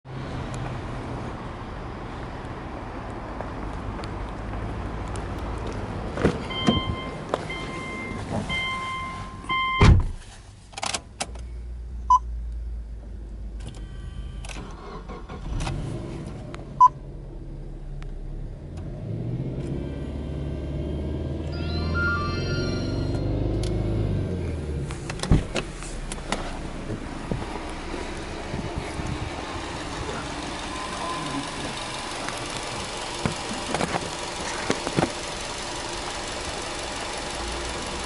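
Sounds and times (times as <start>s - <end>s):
car door shutting: 6.2s - 10.2s, 24.7s - 29.0s
car warning chime beeping: 6.5s - 9.9s, 21.5s - 23.6s, 30.5s - 32.1s
engine revving: 14.1s - 25.2s, 25.9s - 38.0s
car engine idling: 23.2s - 38.0s.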